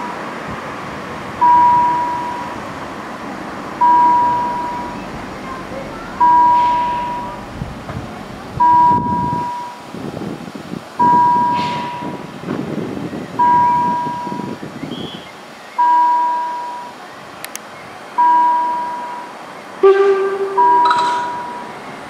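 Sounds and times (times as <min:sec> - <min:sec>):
road traffic rumble: 0:00.0 - 0:22.0
level crossing chime: 0:19.9 - 0:21.7.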